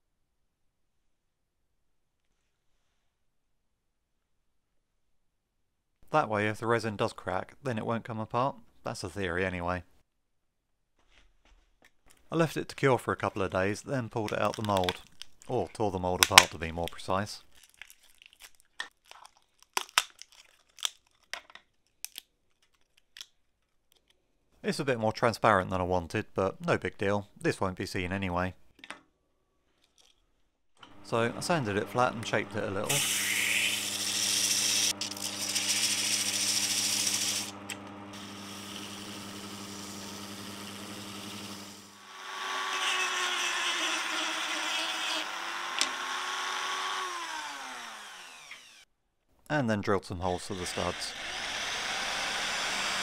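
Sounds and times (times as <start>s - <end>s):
tape crinkling and tearing: 14.2s - 15.5s, 16.2s - 24.2s
sharp crackles and snaps: 16.2s - 24.2s
electric motor humming: 30.9s - 48.8s, 50.4s - 53.0s.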